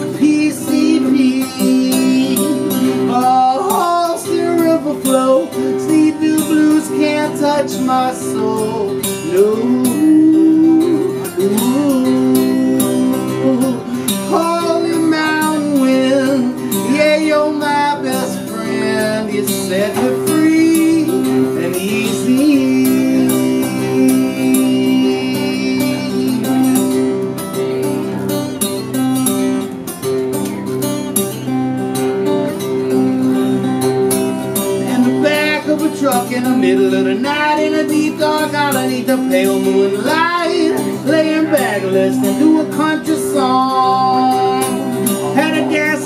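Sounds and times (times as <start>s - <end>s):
man singing long sliding notes: 0.0s - 27.1s, 34.8s - 46.0s
acoustic guitar strumming: 0.0s - 46.0s.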